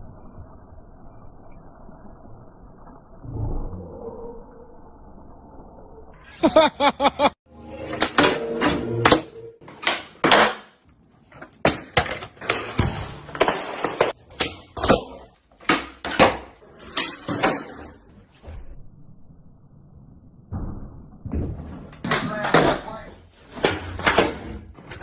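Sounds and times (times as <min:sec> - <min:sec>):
skateboards clacking and thudding: 0:09.1 - 0:18.0.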